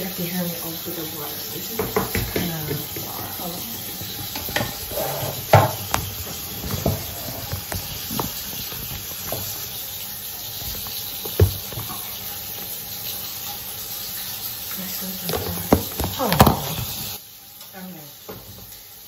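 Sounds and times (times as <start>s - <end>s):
sink tap running: 0.0s - 17.2s, 18.2s - 19.0s
short knocks and bumps: 4.0s - 9.8s, 10.5s - 12.1s.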